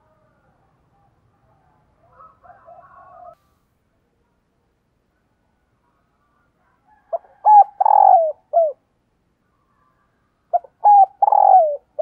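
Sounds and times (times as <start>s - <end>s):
dove cooing: 7.0s - 8.9s, 10.5s - 12.0s.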